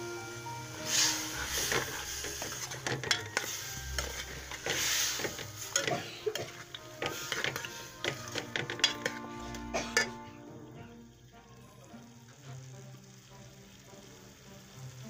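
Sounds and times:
food sizzling: 0.0 - 15.0
metal spatula scraping a wok: 0.8 - 10.4.

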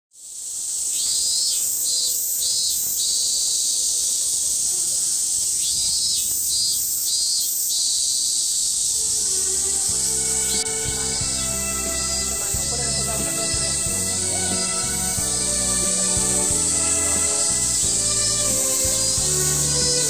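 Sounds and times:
cicadas droning: 0.1 - 20.0
pulsing insect call: 0.2 - 20.0
soft background music: 9.0 - 20.0.

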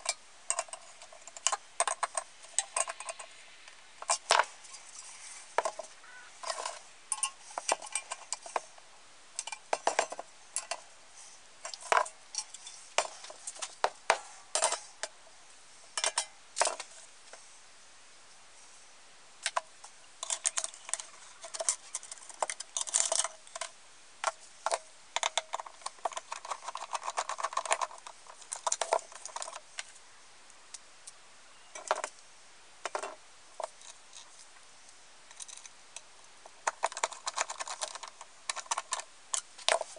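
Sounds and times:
metal stove parts clinking: 0.0 - 3.3, 4.0 - 8.6, 9.4 - 10.8, 11.6 - 15.2, 16.0 - 16.8, 20.2 - 23.7.

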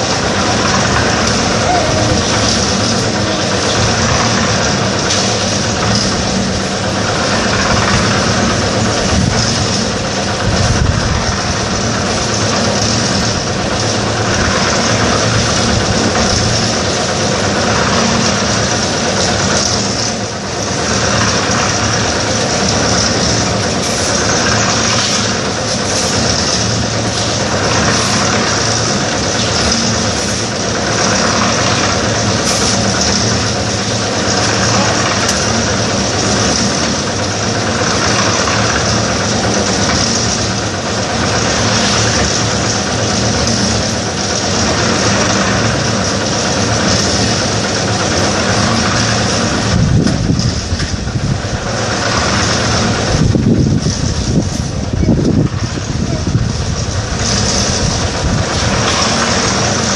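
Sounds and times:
concrete mixer running: 0.0 - 59.9
hiss: 0.0 - 59.9.

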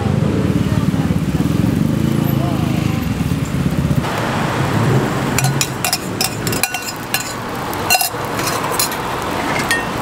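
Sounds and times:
metal spoon clinking in steel cup: 5.4 - 9.0, 9.6 - 10.0.

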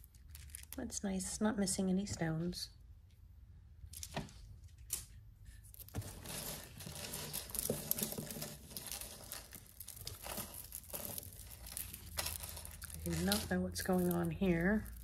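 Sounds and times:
beaded jewelry rustling and clicking: 0.0 - 1.0, 4.8 - 15.0.

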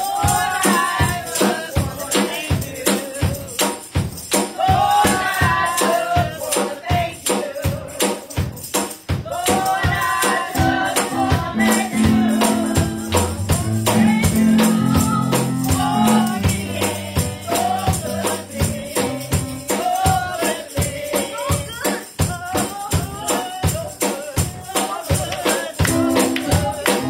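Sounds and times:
gospel singing into microphone: 0.0 - 3.8, 4.4 - 27.0
tambourine struck on the beat: 0.0 - 27.0
held low chords: 10.6 - 19.6.

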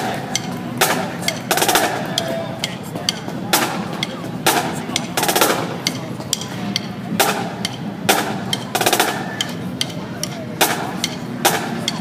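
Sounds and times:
marching bass drums: 0.0 - 12.0
snare drums: 0.0 - 12.0
drumstick clicks: 4.0 - 12.0.

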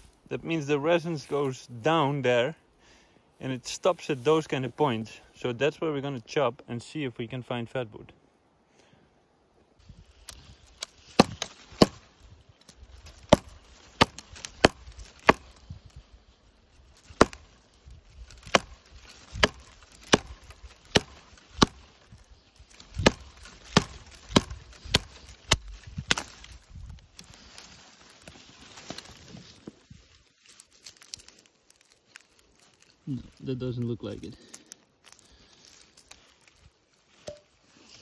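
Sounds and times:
axe chopping into log: 11.1 - 12.1, 13.1 - 15.6, 17.0 - 17.5, 18.4 - 22.0, 22.9 - 26.4.

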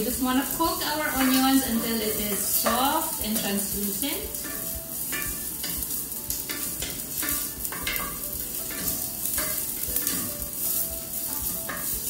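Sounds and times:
onions sizzling in oil: 0.0 - 12.0
wooden spoon scraping a pan: 0.2 - 12.0.

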